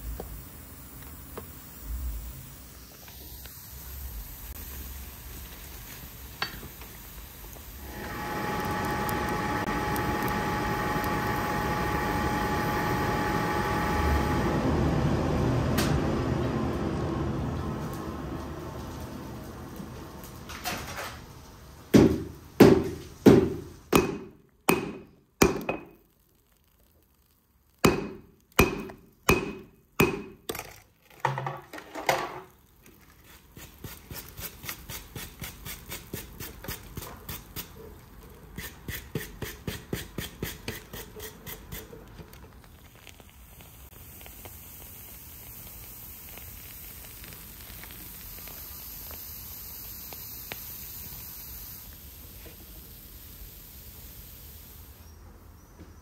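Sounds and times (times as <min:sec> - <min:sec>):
steady hiss: 0:00.0 - 0:14.3, 0:38.5 - 0:56.0
hammer blows on anvil: 0:27.9 - 0:30.4.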